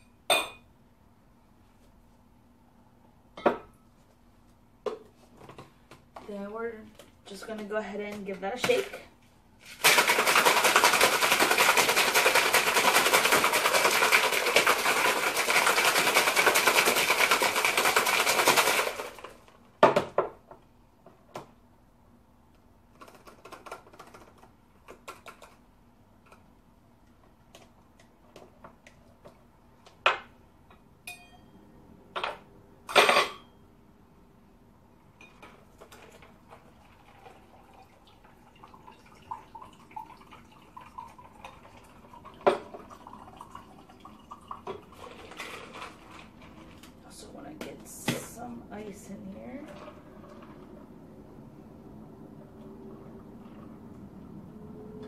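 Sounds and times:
ice rattling in cocktail shaker: 9.6 - 19.4, 35.8 - 46.8.

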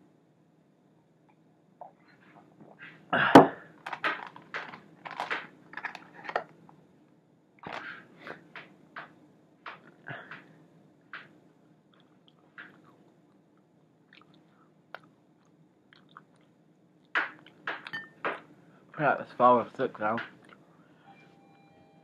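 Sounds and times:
scuffs and clicks of handling food: 3.8 - 6.8, 7.6 - 9.1.

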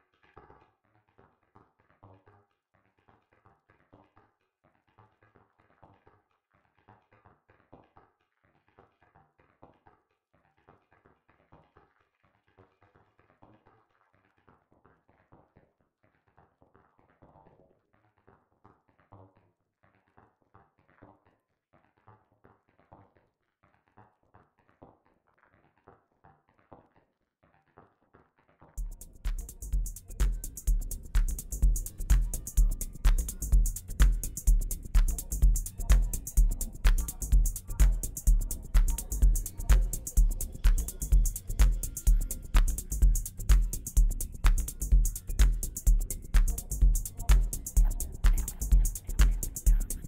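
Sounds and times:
electronic percussion clicks and plucks: 28.8 - 50.0.

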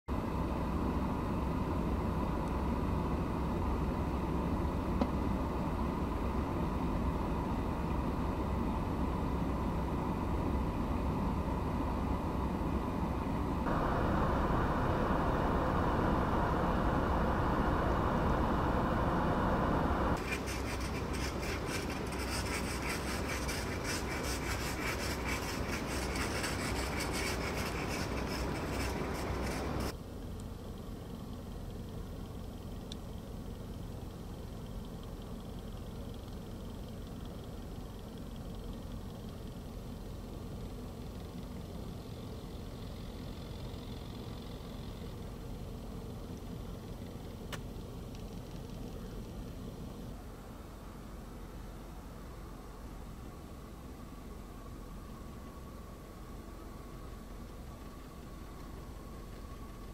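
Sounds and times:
low outdoor rumble: 0.1 - 59.9
scraping snow and ice off car: 17.6 - 30.0.

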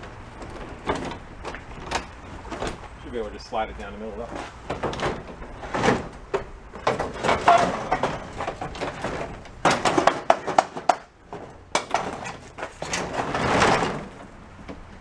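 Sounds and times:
push mower scraping down metal ramp: 4.3 - 14.4.

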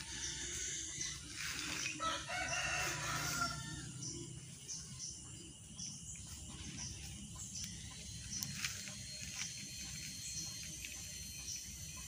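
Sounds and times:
faint high chirps: 0.0 - 12.0
rooster crowing: 2.0 - 4.1.

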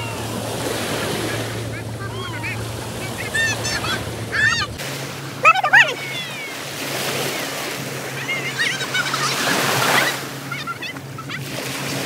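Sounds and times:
children calling out: 0.0 - 4.8, 5.4 - 6.6, 8.0 - 11.6
water splashing around waders: 0.0 - 12.0.

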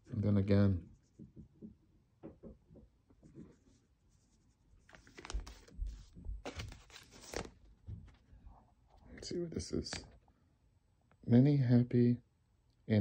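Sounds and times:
papers rustling and shuffling: 4.6 - 9.1.

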